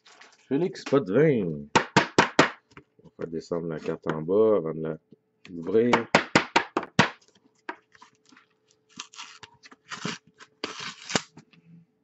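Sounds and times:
paper tearing: 8.9s - 11.4s.

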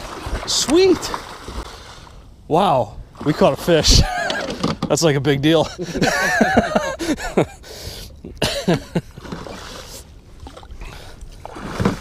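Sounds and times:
fish splashing and thrashing: 0.0s - 2.2s, 9.0s - 12.0s.

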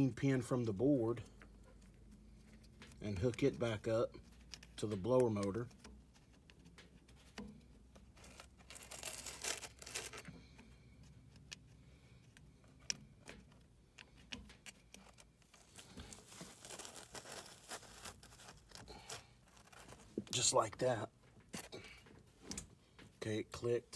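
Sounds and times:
faint rustling of wires: 0.0s - 23.9s.

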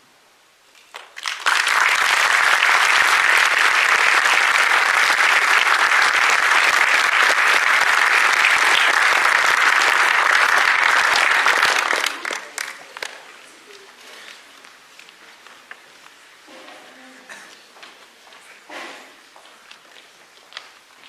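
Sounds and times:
audience clapping: 0.9s - 13.5s.

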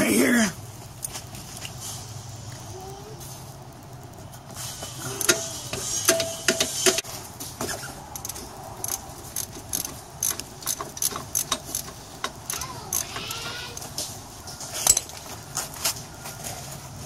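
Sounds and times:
hand tools clinking on metal: 5.0s - 7.0s, 7.8s - 15.3s.

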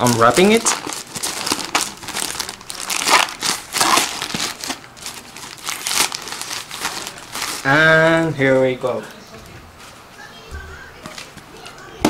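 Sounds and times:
plastic bag tearing and crinkling: 0.0s - 8.8s.

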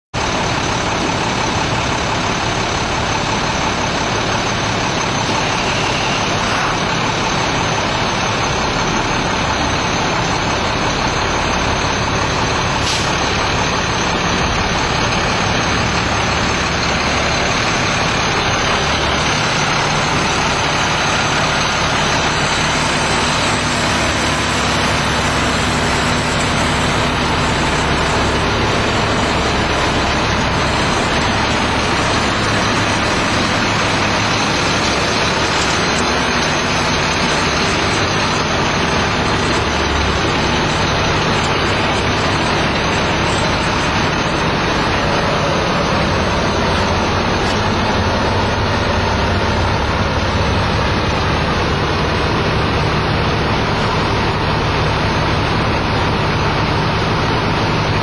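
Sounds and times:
diesel truck engine idling: 0.2s - 58.0s.

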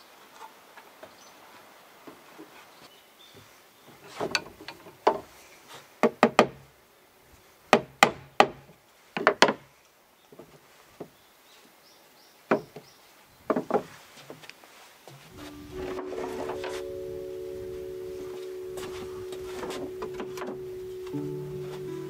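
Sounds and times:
wood-on-wood knocks: 13.5s - 13.9s.

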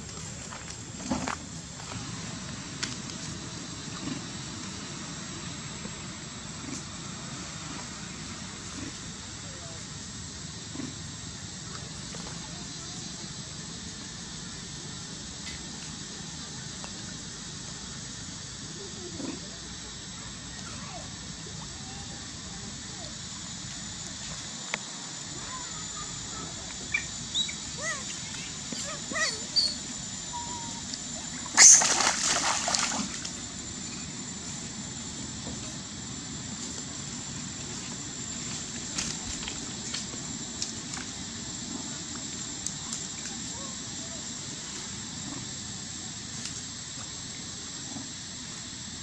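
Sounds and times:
faint splashing of swimming monkeys: 0.0s - 34.6s
hiss of water: 0.0s - 35.8s
monkey splashing in water: 31.5s - 33.3s.

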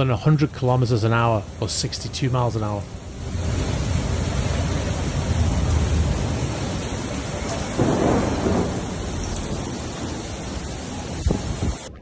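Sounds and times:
rough sea rushing: 0.0s - 12.0s
wind buffeting microphone: 3.1s - 12.0s.

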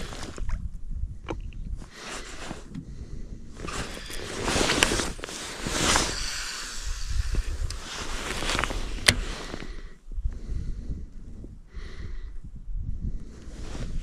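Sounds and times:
wind rumbling on microphone: 0.0s - 14.0s
bursts of hiss: 5.5s - 7.7s.

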